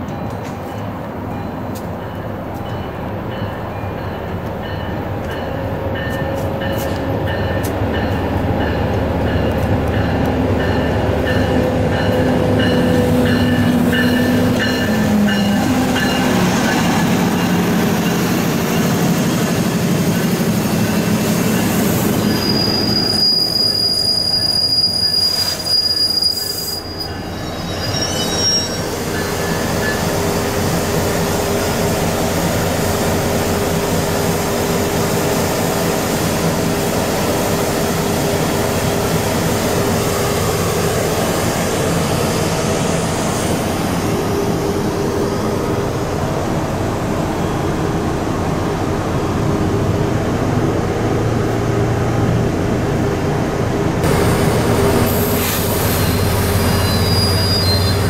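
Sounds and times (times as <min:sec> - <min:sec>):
diesel locomotive engine: 0:00.0 - 0:58.0
train coaches rumbling on rails: 0:00.0 - 0:58.0
metallic wheel squeal: 0:22.1 - 0:30.1, 0:55.4 - 0:58.0.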